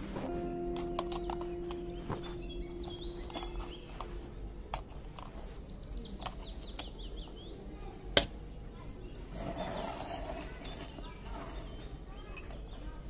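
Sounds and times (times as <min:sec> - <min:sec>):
held musical note: 0:00.0 - 0:04.8
birds chirping: 0:00.0 - 0:13.0.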